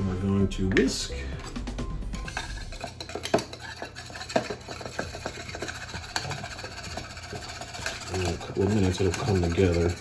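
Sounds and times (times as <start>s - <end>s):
wire whisk clinking against bowl: 2.3s - 10.0s.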